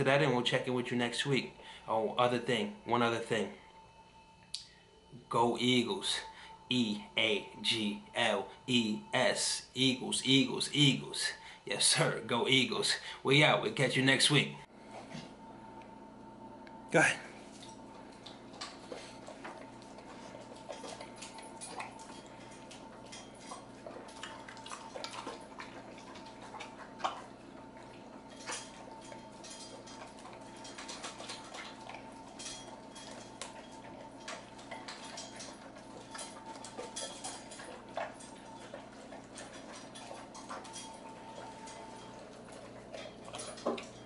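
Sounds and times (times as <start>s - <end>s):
dog eating from metal bowl: 5.5s - 13.0s, 17.3s - 44.0s
metal clinking against bowl: 20.1s - 44.0s.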